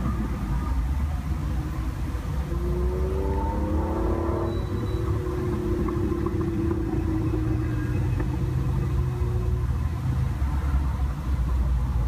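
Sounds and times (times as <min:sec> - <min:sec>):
sports car engine accelerating: 0:01.4 - 0:10.6.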